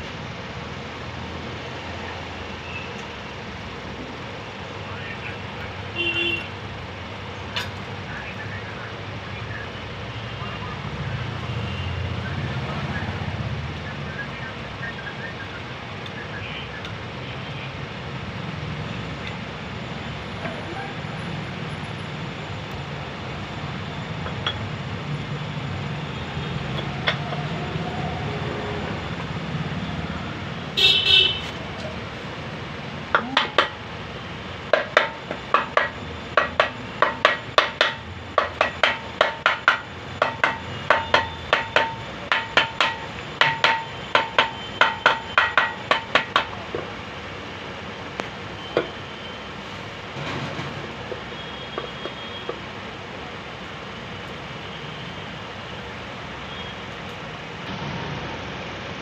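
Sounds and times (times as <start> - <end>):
metal tapping on metal: 33.1 - 33.8, 34.7 - 46.8.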